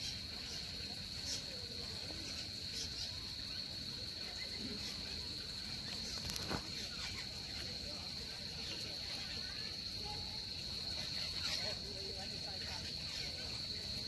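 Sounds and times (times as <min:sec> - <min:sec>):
insect buzzing: 0:00.0 - 0:14.0.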